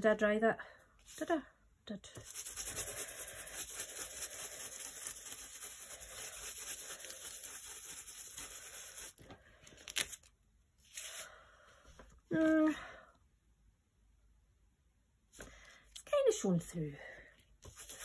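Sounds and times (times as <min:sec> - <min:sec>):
stencil brush rubbing: 0:02.2 - 0:09.2, 0:17.6 - 0:18.0.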